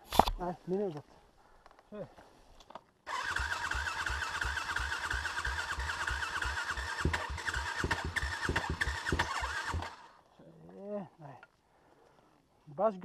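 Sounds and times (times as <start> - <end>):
motorcycle starter cranking: 3.1 - 10.2.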